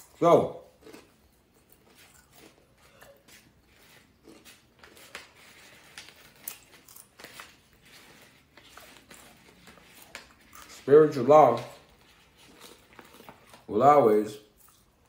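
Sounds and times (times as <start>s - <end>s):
plastic package crinkling: 3.8s - 13.8s.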